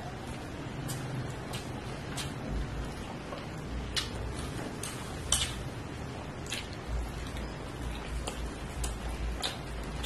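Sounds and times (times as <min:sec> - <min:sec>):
person chewing: 0:03.3 - 0:05.7, 0:06.4 - 0:10.0.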